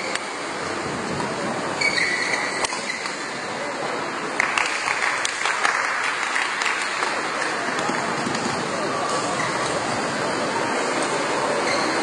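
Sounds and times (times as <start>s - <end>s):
hubbub of spectators: 0.0s - 12.0s
shoe squeak on court floor: 1.8s - 3.4s, 11.6s - 12.0s
racket hitting shuttlecock: 2.6s - 3.2s.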